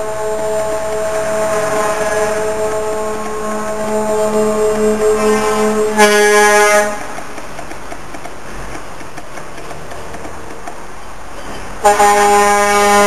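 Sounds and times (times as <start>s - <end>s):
truck air horn blast: 0.0s - 7.2s, 11.8s - 13.0s
diesel truck engines passing: 0.0s - 13.0s.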